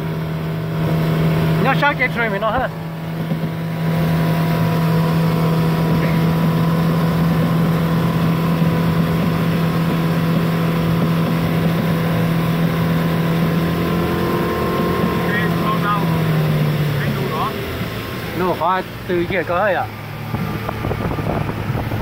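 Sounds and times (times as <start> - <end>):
boat motor humming: 0.0 - 22.0
water wash noise: 0.0 - 22.0.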